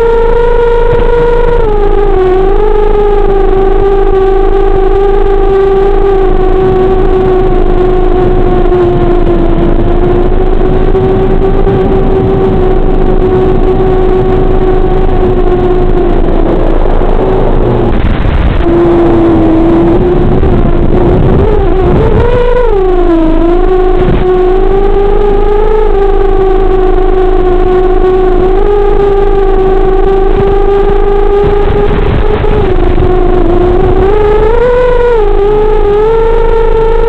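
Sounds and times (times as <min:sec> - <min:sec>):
electric motor and propeller whine: 0:00.0 - 0:37.0.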